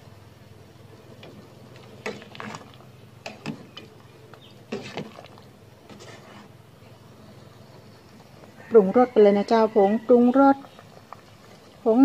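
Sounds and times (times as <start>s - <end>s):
metal ladle scraping pot: 1.2s - 6.6s.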